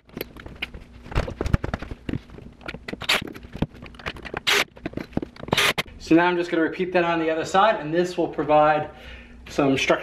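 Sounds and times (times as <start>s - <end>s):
wood knocking and scraping: 0.1s - 5.5s.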